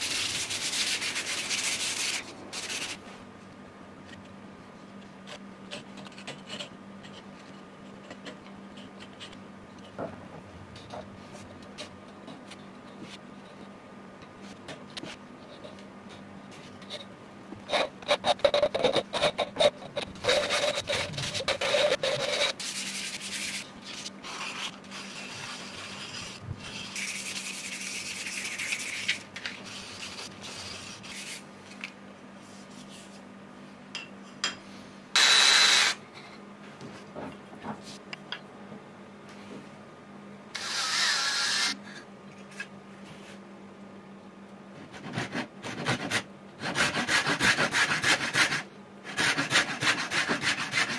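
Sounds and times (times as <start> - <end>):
wood sanding on sandpaper: 0.0 - 3.0, 24.3 - 31.4, 45.0 - 50.9
cordless drill whirring: 40.6 - 41.8.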